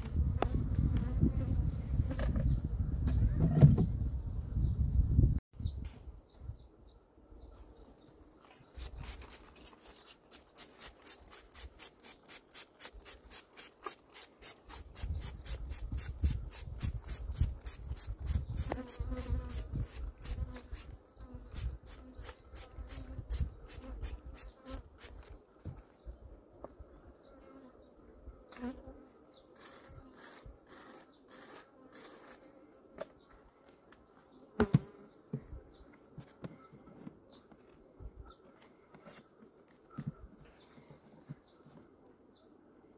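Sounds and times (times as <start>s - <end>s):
honeybees buzzing: 16.2s - 24.9s.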